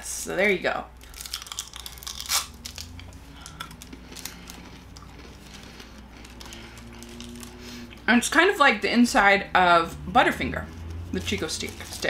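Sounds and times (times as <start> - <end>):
candy crunching and chewing: 0.9 - 8.1, 10.6 - 12.0.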